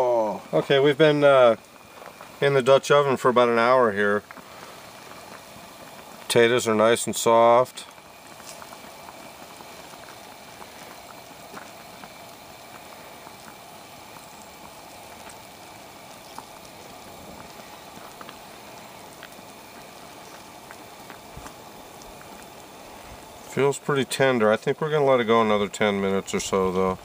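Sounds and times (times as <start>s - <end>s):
food bubbling and sizzling in a pot: 0.0s - 27.0s
small pops: 7.9s - 14.4s, 15.1s - 22.5s.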